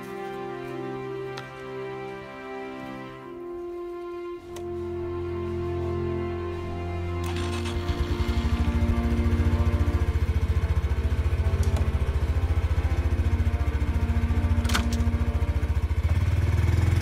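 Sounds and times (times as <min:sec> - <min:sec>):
motorcycle engine idling: 0:07.3 - 0:17.0.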